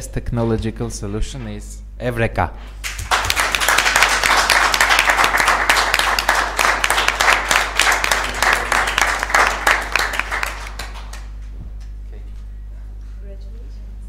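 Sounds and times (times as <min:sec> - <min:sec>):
audience applauding: 0:02.8 - 0:11.5.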